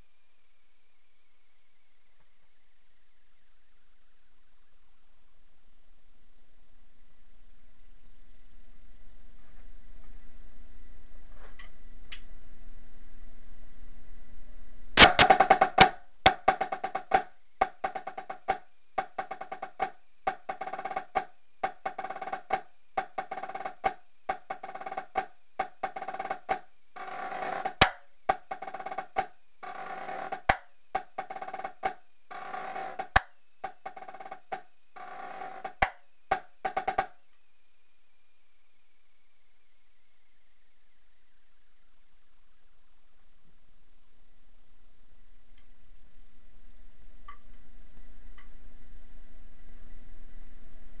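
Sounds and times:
marching snare drum: 15.0 - 37.1.

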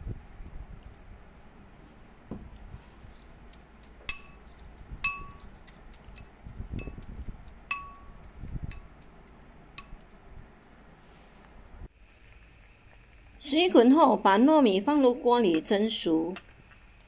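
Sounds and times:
soft wet stirring: 0.8 - 13.4
spoon clinking on glass bowl: 4.1 - 4.4, 5.0 - 5.4, 7.7 - 8.9.

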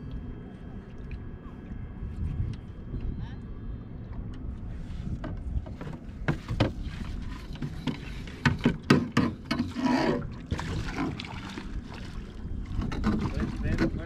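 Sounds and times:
wind on microphone: 1.7 - 8.6
water against boat hull: 4.0 - 14.0.

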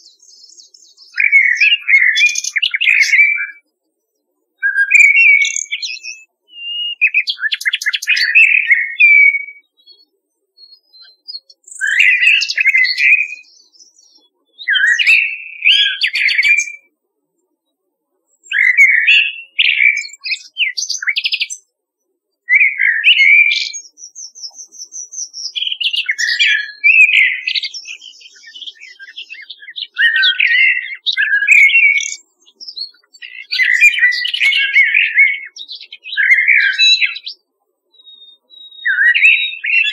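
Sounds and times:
birds singing whistled phrases: 0.0 - 39.9
high bird trill: 4.6 - 9.7, 22.6 - 37.4, 38.0 - 39.9.

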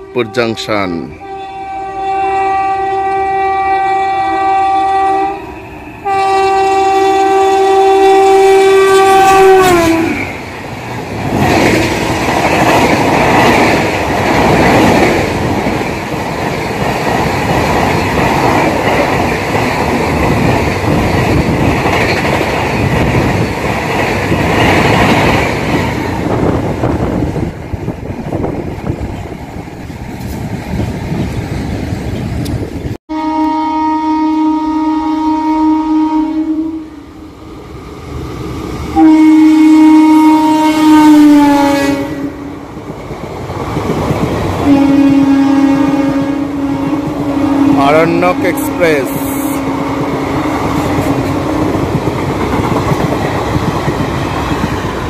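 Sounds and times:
locomotive horn blast: 0.0 - 10.3, 33.1 - 37.0, 39.0 - 42.5, 44.6 - 49.9
train wheels clacking over rail joints: 11.2 - 26.2, 49.9 - 55.0.

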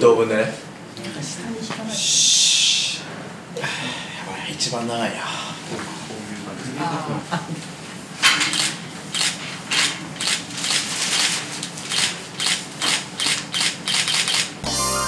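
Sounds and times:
camera shutter clicks: 11.9 - 14.6.

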